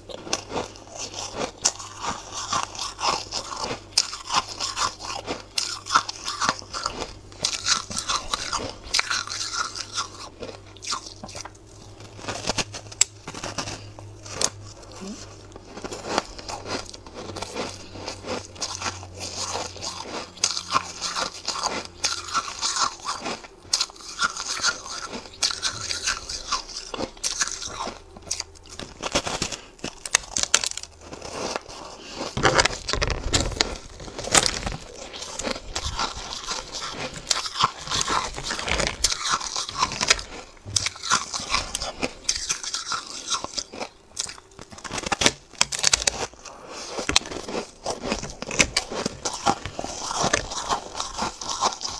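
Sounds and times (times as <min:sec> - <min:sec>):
crunching and chewing ice: 0:00.0 - 0:51.9.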